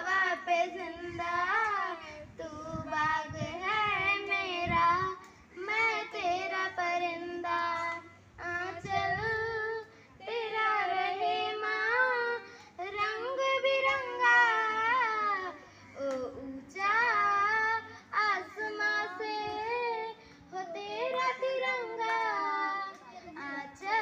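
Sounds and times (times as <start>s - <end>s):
girl singing into a microphone: 0.0s - 24.0s
singer breathing: 15.6s - 16.0s.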